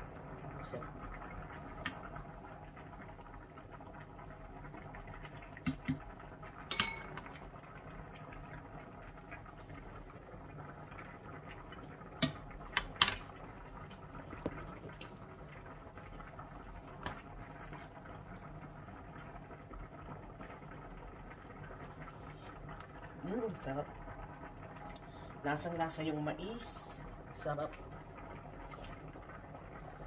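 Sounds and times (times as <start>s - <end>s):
stew bubbling: 0.0s - 30.0s
metal ladle clinking on pot: 6.7s - 7.2s.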